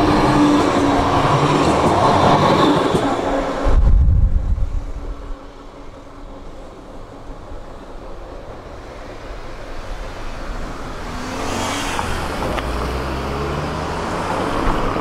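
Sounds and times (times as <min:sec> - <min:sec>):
car approaching on road: 0:03.2 - 0:15.0.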